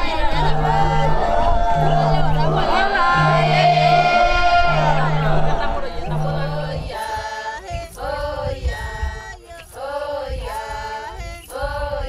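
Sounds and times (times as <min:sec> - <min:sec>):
low beat thumps: 0:00.0 - 0:07.1
group of voices chanting: 0:00.0 - 0:08.8.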